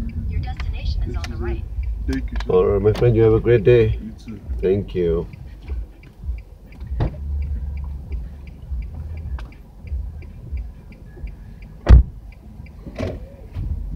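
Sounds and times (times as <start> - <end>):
car engine idling: 0.0 - 13.9
light ticking: 0.0 - 13.9
car door slamming: 6.9 - 7.2, 11.8 - 12.2, 12.9 - 13.3.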